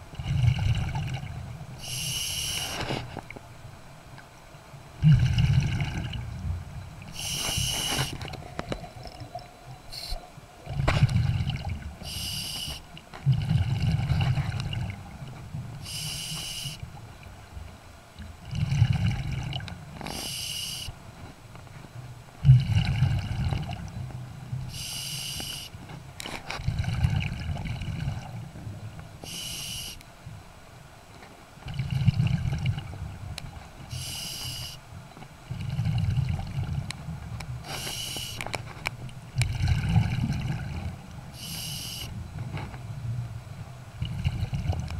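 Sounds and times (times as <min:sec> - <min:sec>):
exhaled bubbles rumbling: 0:00.0 - 0:01.8, 0:05.0 - 0:12.1, 0:13.2 - 0:15.8, 0:18.2 - 0:20.0, 0:22.4 - 0:24.8, 0:26.6 - 0:28.9, 0:31.6 - 0:33.4, 0:35.4 - 0:37.6, 0:39.2 - 0:41.3, 0:42.2 - 0:44.9
regulator inhalation hiss: 0:01.8 - 0:02.9, 0:07.2 - 0:08.2, 0:09.9 - 0:10.2, 0:12.0 - 0:12.8, 0:15.8 - 0:16.8, 0:20.1 - 0:20.9, 0:24.7 - 0:25.8, 0:29.2 - 0:30.0, 0:33.9 - 0:34.8, 0:37.7 - 0:38.4, 0:41.4 - 0:42.1.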